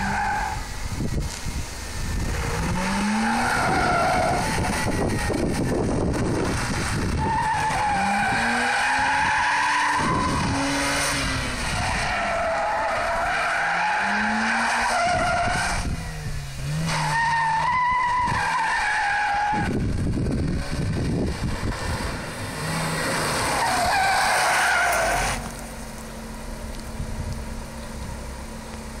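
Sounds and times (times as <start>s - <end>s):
rotary engine revving: 0.0s - 29.0s
tyres squealing: 22.7s - 25.6s.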